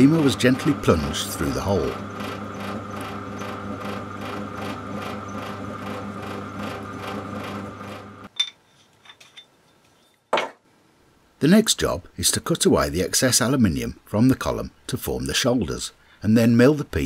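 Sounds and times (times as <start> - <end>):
drill press motor humming: 0.0 - 8.3.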